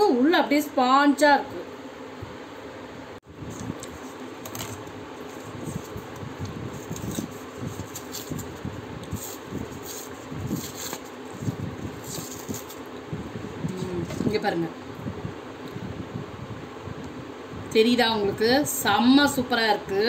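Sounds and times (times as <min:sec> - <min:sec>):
steady background hum: 0:00.0 - 0:20.0
paper liner crinkling: 0:03.5 - 0:12.9.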